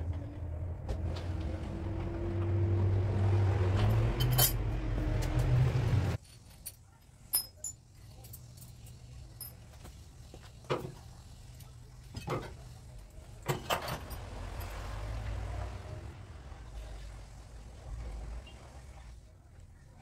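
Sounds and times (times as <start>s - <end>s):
metal tools clinking: 4.0s - 4.6s, 6.2s - 9.8s.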